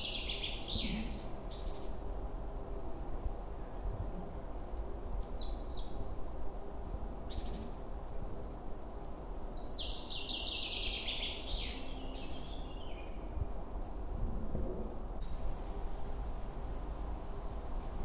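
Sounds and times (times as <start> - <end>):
steady low rumble: 13.2 - 18.0.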